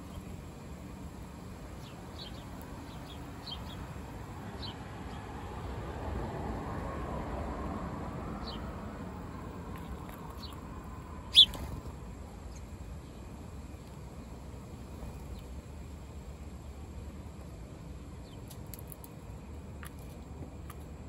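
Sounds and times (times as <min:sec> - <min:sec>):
sparrows chirping: 0:00.0 - 0:05.8, 0:08.4 - 0:20.8.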